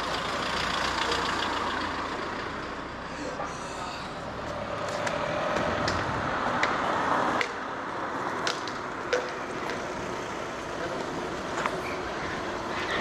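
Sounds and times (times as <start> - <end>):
vehicle engine running: 0.0 - 3.4.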